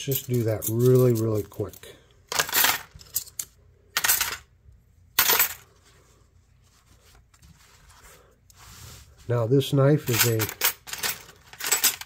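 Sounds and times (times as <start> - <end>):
paper towel rustling: 5.7 - 10.2.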